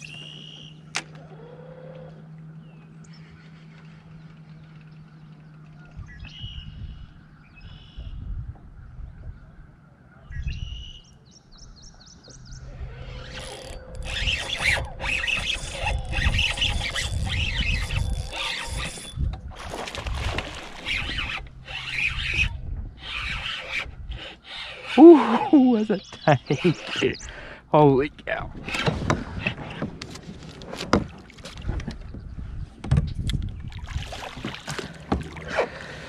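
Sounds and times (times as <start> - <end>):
songbirds chirping: 0.0 - 16.6, 21.4 - 28.5.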